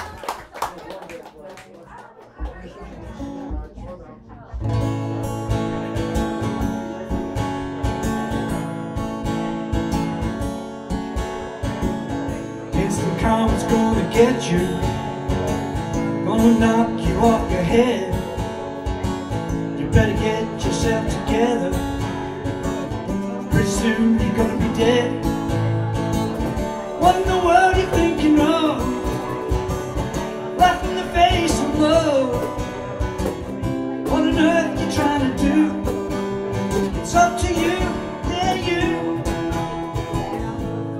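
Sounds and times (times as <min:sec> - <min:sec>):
acoustic guitar strummed: 0:04.6 - 0:40.9
cajon played by hand: 0:09.2 - 0:40.9
man singing: 0:12.5 - 0:40.8.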